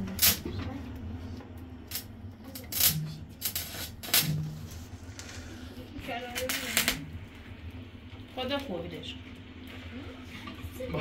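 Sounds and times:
welding arc crackling and sizzling: 0.0 - 1.0, 1.6 - 10.1
sharp welding pops: 0.1 - 0.5, 1.9 - 4.6, 6.2 - 7.2.

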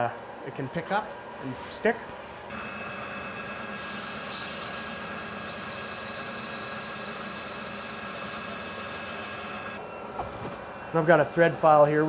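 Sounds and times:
metal lathe humming and whining: 2.5 - 11.0.

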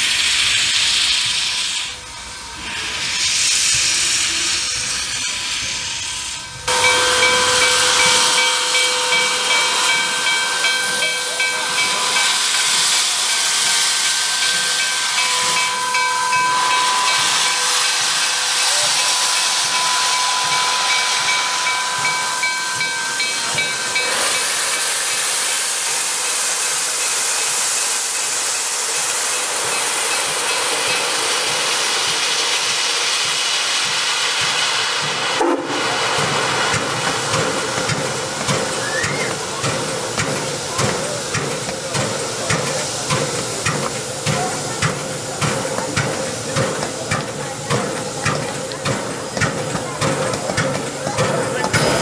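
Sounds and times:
steam hissing: 0.0 - 52.0
faint whistling tone: 38.7 - 39.4.

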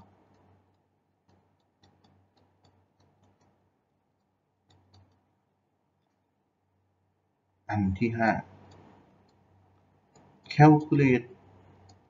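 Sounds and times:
stylus tapping on tablet: 0.0 - 6.2
faint low hum: 0.0 - 12.0.

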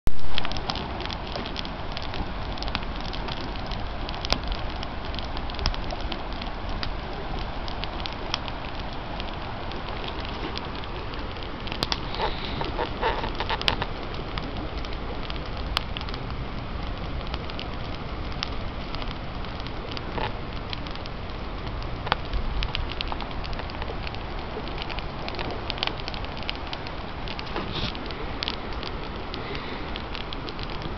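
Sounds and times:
campfire crackling and popping: 0.1 - 30.9
steady rushing hiss: 0.1 - 30.9.

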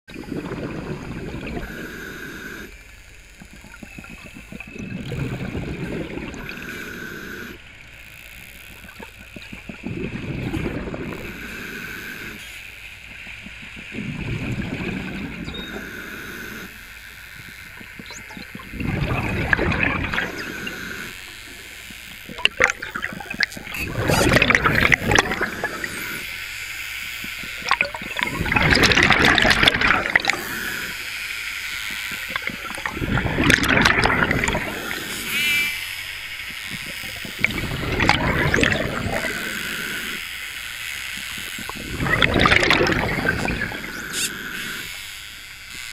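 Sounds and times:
exhaled bubbles gurgling: 0.1 - 2.7, 3.4 - 7.6, 8.7 - 12.4, 13.3 - 16.8, 17.4 - 26.3, 27.3 - 31.0, 31.9 - 35.7, 36.5 - 40.2, 41.2 - 44.9
regulator inhalation hiss: 1.6 - 2.9, 6.4 - 7.6, 11.1 - 12.7, 15.6 - 16.9, 20.2 - 21.8, 30.3 - 31.1, 34.5 - 36.5, 43.8 - 45.0.

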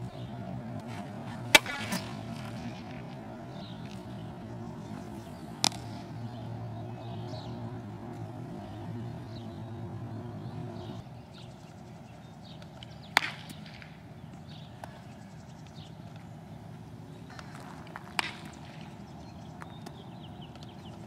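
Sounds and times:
baseball bat crack: 0.0 - 11.0, 12.6 - 15.2, 17.2 - 21.0
low hum: 0.0 - 13.0.

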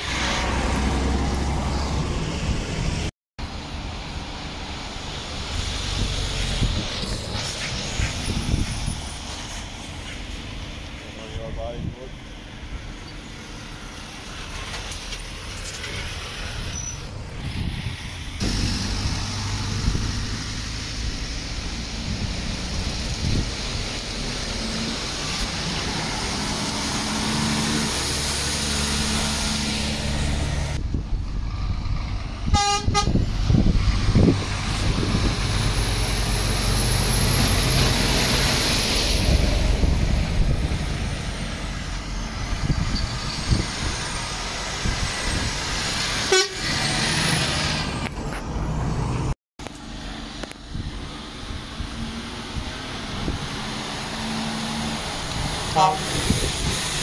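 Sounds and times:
lorry engines passing: 0.0 - 57.0
truck horn toot: 32.5 - 33.2, 46.3 - 46.8, 55.7 - 56.3.

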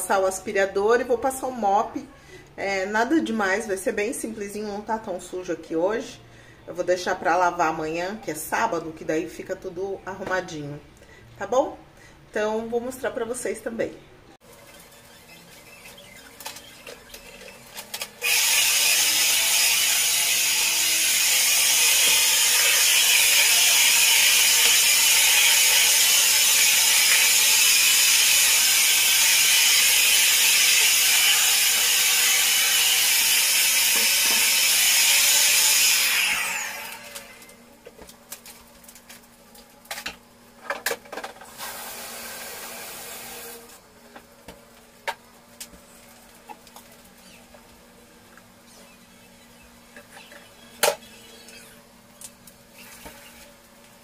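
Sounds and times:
vacuum cleaner running: 18.2 - 37.5, 41.5 - 43.8.

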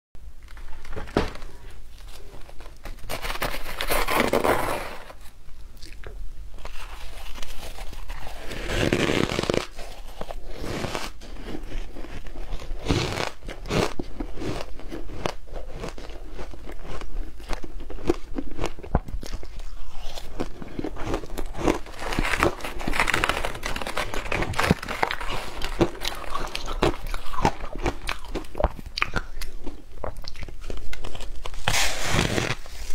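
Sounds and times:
teeth crunching ice: 11.5 - 31.6.

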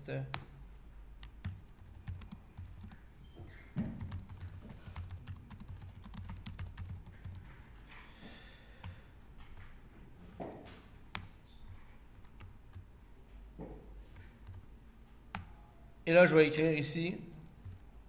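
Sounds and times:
typing on computer keyboard: 1.2 - 3.0, 3.8 - 7.9, 17.6 - 17.9.

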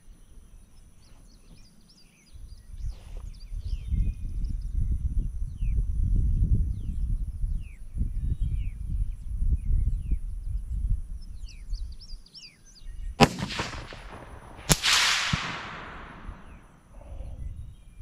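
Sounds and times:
birds chirping: 11.5 - 18.0
rifle shot cracks with echo: 13.2 - 16.7.

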